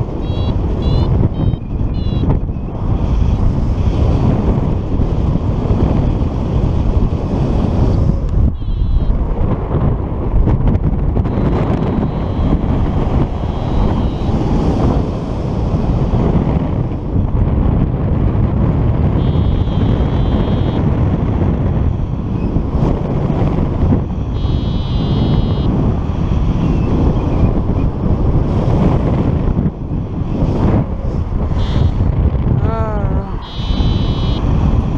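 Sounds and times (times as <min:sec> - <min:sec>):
wind buffeting microphone: 0:00.0 - 0:34.9
variometer warbling beeps: 0:00.2 - 0:02.7, 0:08.5 - 0:09.2, 0:11.3 - 0:14.5, 0:19.2 - 0:20.8, 0:24.3 - 0:25.7, 0:33.3 - 0:34.5.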